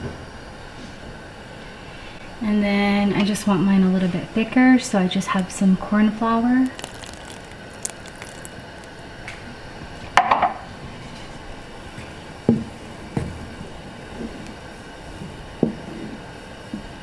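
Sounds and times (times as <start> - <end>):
wooden spoon stirring soup: 6.6 - 9.0.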